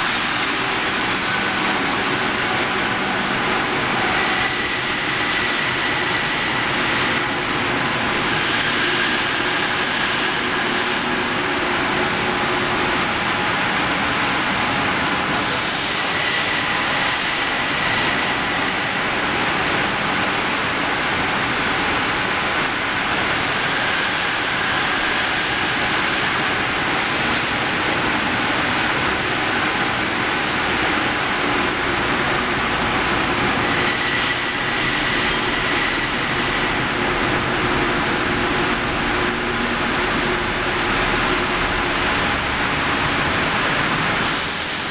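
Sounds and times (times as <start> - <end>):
steel rolling mill machinery: 0.0 - 44.9
faint high metallic squeals: 34.0 - 37.0.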